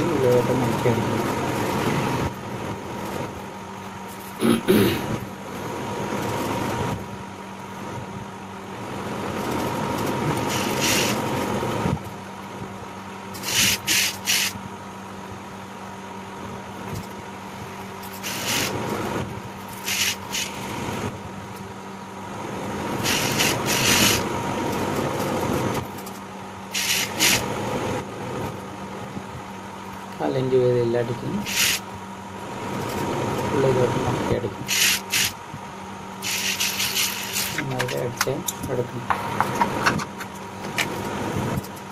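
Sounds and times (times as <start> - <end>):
sewing machine stitching: 10.4 - 11.2, 23.0 - 24.2, 26.8 - 27.4, 36.2 - 37.7.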